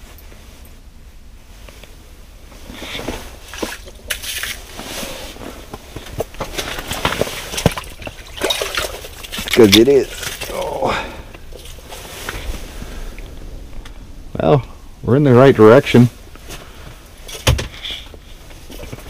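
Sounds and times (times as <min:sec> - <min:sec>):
line and clothing rustle: 0:00.0 - 0:10.7, 0:11.4 - 0:13.8
fish knocking and slapping on ice: 0:03.5 - 0:04.7, 0:06.0 - 0:10.7
water splashing: 0:06.4 - 0:12.2.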